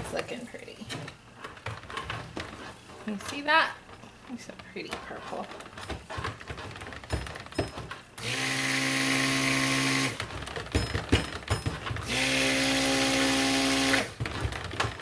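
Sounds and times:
blender head knocking in bucket: 0:05.9 - 0:15.0
stick blender motor hum: 0:08.2 - 0:10.6, 0:11.9 - 0:15.0.

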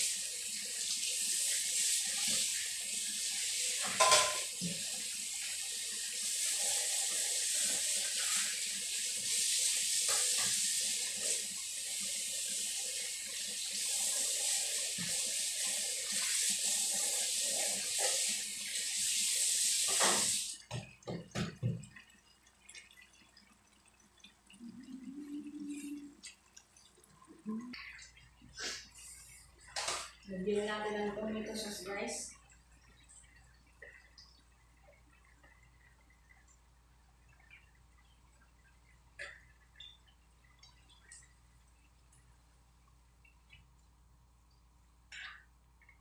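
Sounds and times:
faucet running into metal sink: 0:00.0 - 0:23.5
dishes knocking against sink: 0:03.9 - 0:04.5.

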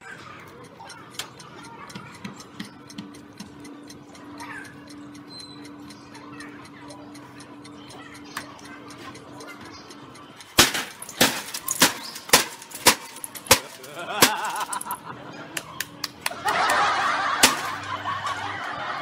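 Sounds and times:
people laughing: 0:13.4 - 0:19.0.

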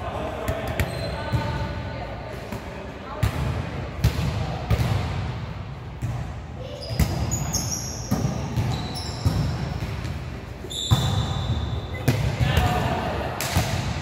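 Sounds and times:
sneaker squeaks on court floor: 0:00.7 - 0:01.6, 0:06.7 - 0:12.4
volleyball thumps echoing: 0:02.5 - 0:05.3, 0:08.1 - 0:14.0.

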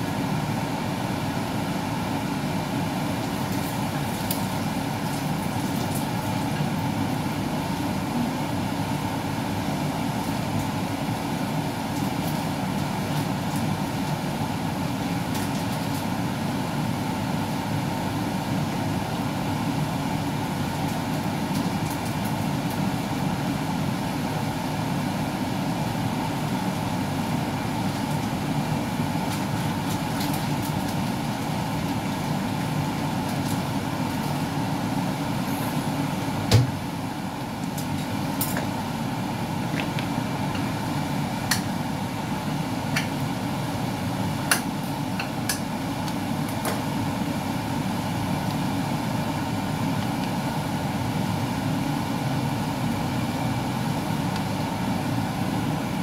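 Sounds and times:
broth simmering with small pops: 0:47.6 - 0:50.8.

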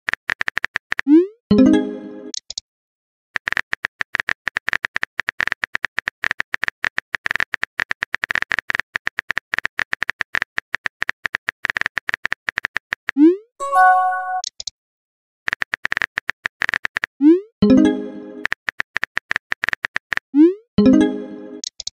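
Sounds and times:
short chime: 0:13.6 - 0:14.4.

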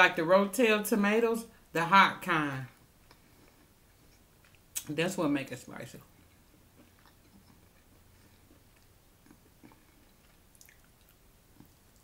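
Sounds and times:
soft chewing: 0:02.7 - 0:05.0, 0:06.0 - 0:12.0.

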